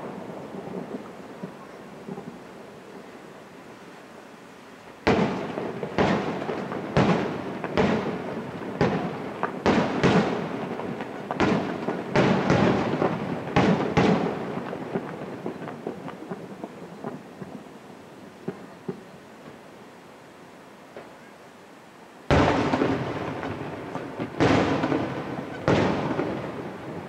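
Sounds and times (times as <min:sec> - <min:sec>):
firework shells bursting: 0:22.3 - 0:27.0.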